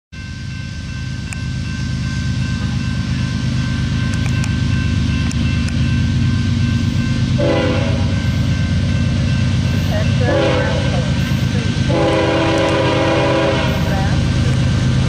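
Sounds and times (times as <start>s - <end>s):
crossing bells ringing: 0.1s - 15.0s
locomotive diesel engine rumble: 1.2s - 15.0s.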